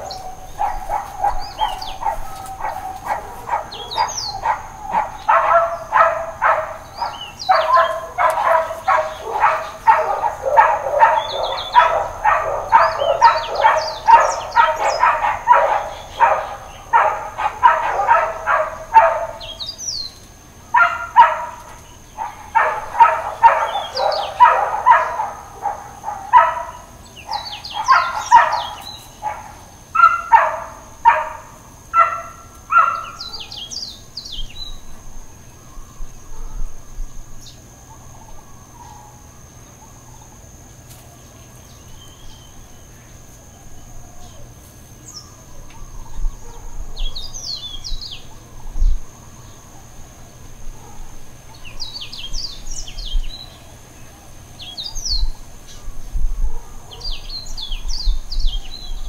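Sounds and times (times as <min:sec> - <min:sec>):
dogs barking: 0:00.0 - 0:19.9, 0:20.7 - 0:34.0, 0:36.3 - 0:36.8, 0:37.9 - 0:40.1, 0:45.1 - 0:48.5, 0:50.6 - 0:53.5, 0:56.3 - 0:58.2
birds chirping faintly: 0:00.0 - 0:59.0.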